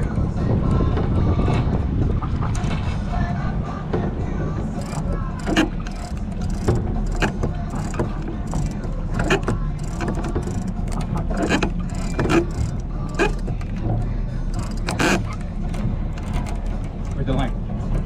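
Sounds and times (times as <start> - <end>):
boat engine rumbling: 0.0 - 18.0
water slapping against hull: 0.0 - 18.0.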